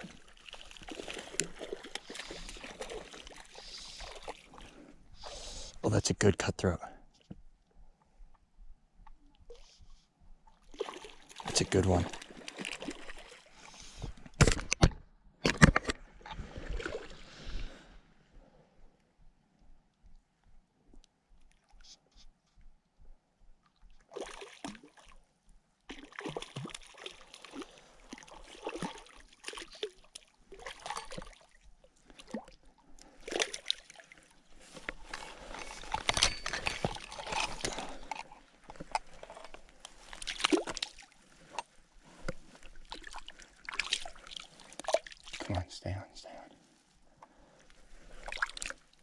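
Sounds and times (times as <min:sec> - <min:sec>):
fish splashing in shallow water: 0:00.0 - 0:05.7, 0:10.6 - 0:14.0, 0:23.9 - 0:25.3, 0:25.9 - 0:45.5, 0:48.0 - 0:49.0
footsteps sloshing on wet rocks: 0:10.7 - 0:13.5, 0:33.2 - 0:45.5.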